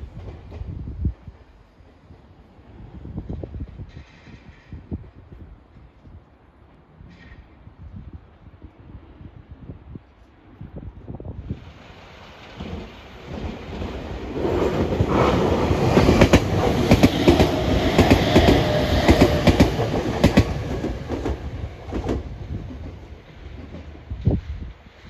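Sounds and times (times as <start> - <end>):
electric train passing: 11.4 - 25.0.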